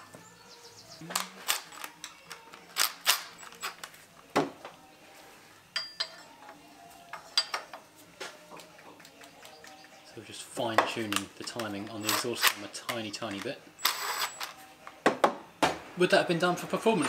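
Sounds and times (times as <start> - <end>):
metallic clinks of hand tools: 5.8 - 6.4.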